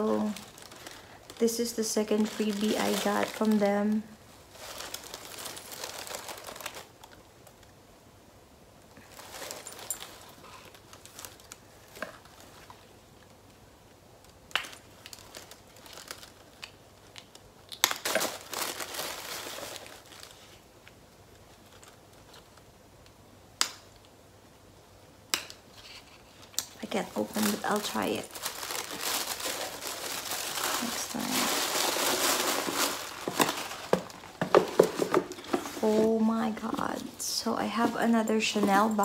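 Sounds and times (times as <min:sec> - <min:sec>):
paper packaging crinkling: 0:00.0 - 0:07.7, 0:09.0 - 0:12.9, 0:14.6 - 0:20.7, 0:25.7 - 0:39.0.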